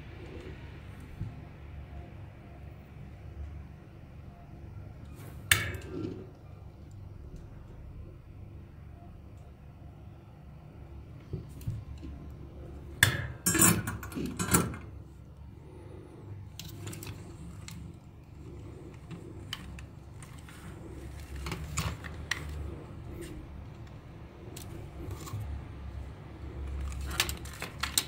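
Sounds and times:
plastic parts clicking and tapping: 26.5 - 28.0.

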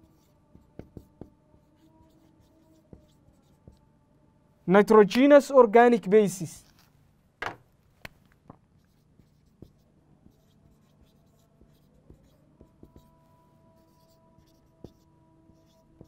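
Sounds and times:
marker pen on whiteboard: 0.0 - 3.8, 6.5 - 16.0.

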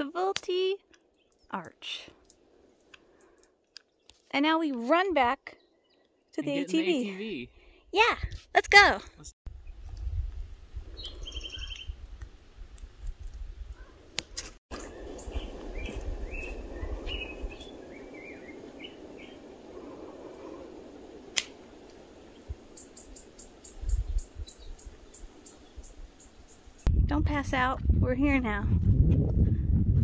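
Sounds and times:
small birds chirping: 0.8 - 4.3, 5.4 - 6.7, 10.8 - 12.0, 14.7 - 26.9.

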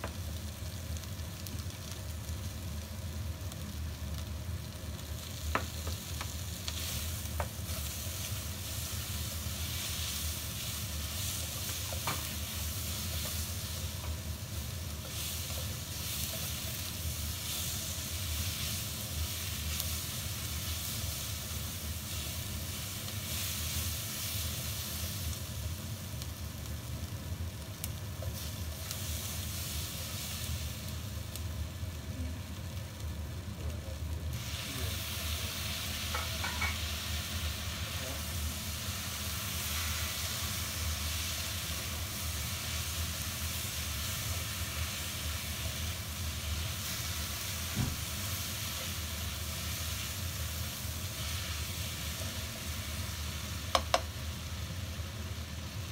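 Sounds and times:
food sizzling in wok: 0.0 - 55.9
spatula clicking against pan: 53.7 - 54.1.

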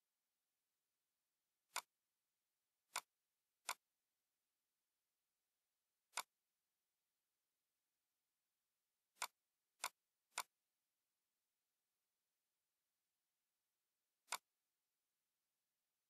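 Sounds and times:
computer mouse clicks: 1.7 - 1.9, 2.9 - 3.8, 6.1 - 6.4, 9.2 - 10.6, 14.2 - 14.5.

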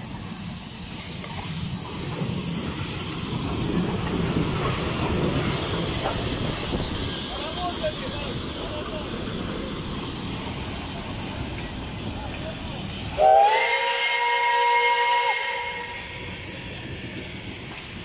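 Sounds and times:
steam hissing: 0.0 - 18.0
steam locomotive whistle: 13.1 - 16.7.

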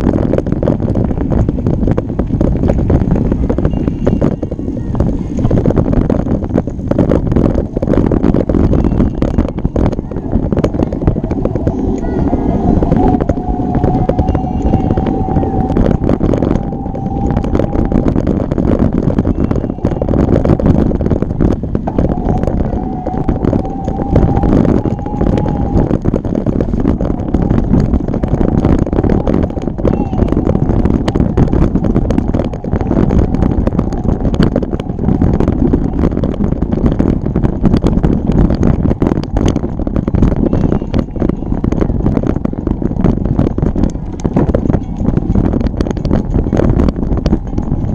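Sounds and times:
low rumble: 0.0 - 47.9
wind buffeting microphone: 0.0 - 47.9
bike clicking and rattling: 26.0 - 47.9.

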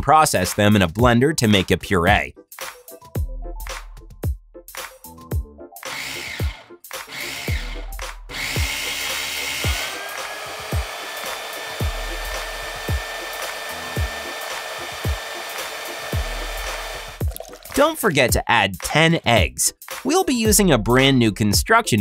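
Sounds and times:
immersion blender motor whining: 5.8 - 17.2.

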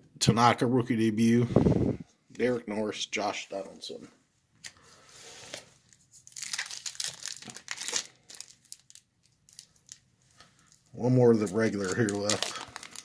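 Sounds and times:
plastic wrapper crinkling: 5.5 - 13.0.

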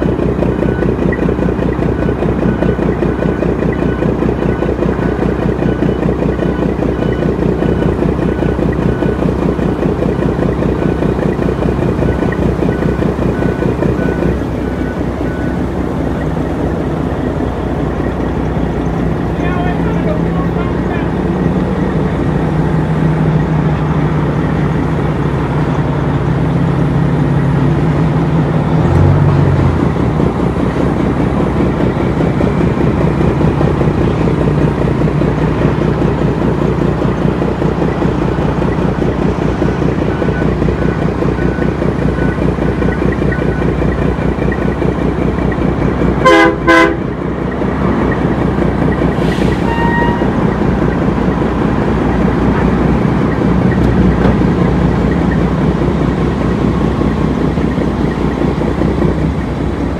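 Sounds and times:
diesel truck engine idling: 0.0 - 59.9
truck horn blasts: 46.2 - 47.1, 49.3 - 50.4.

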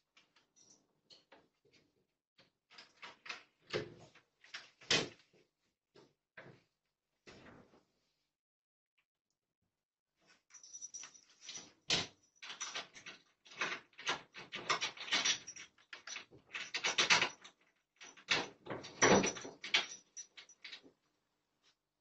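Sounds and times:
wooden door rattling and knocking: 18.1 - 20.1.

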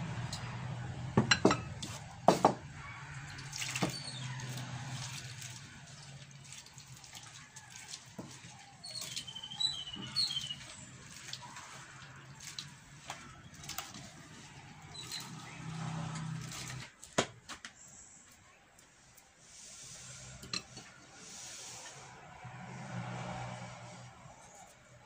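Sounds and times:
hand squelching wet coconut: 2.9 - 17.1
water pouring into a bowl: 3.1 - 16.8.

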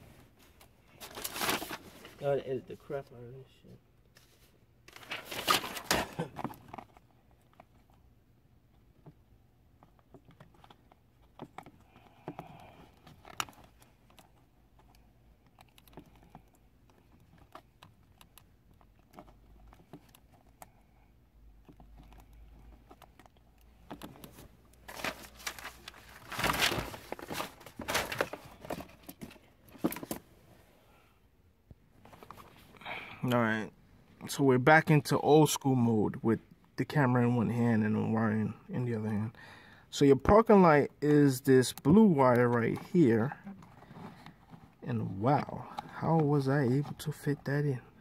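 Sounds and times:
plastic rustling and crinkling: 0.4 - 2.3, 4.2 - 8.0, 21.6 - 30.3, 42.6 - 46.0.

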